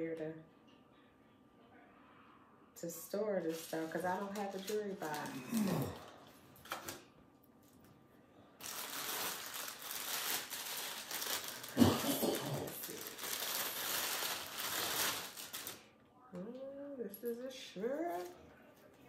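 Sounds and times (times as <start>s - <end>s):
plastic package crinkling: 3.4s - 7.0s, 8.6s - 15.9s.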